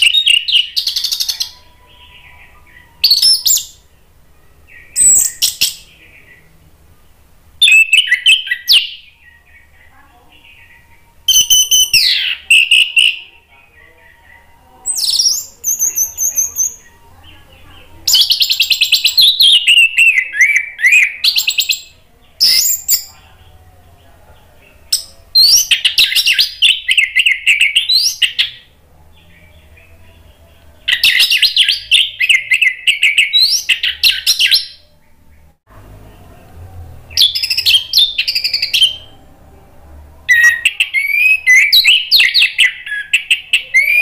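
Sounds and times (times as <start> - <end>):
bird singing trills and whistles: 0.0 - 3.9, 4.7 - 6.5, 7.6 - 23.2, 24.9 - 28.7, 30.8 - 34.9, 37.1 - 39.1, 40.3 - 44.0.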